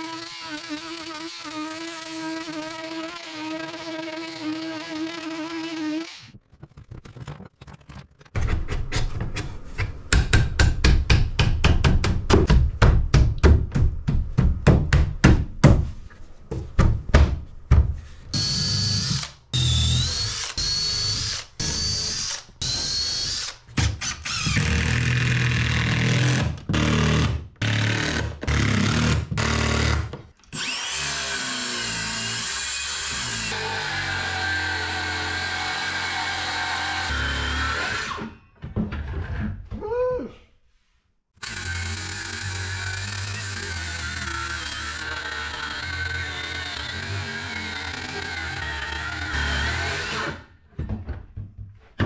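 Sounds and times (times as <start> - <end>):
cordless drill whining: 18.4 - 24.9, 30.6 - 38.2, 41.4 - 50.4.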